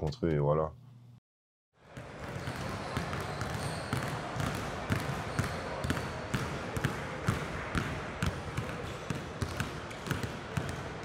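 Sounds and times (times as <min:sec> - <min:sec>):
basketballs bouncing on wooden floor: 0:02.0 - 0:11.0.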